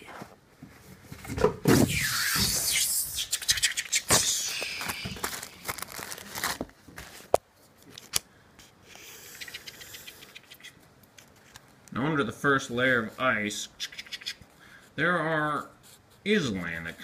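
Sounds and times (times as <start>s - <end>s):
paper rustling and scraping: 4.1s - 7.4s
pencil scratching on paper: 14.9s - 17.0s.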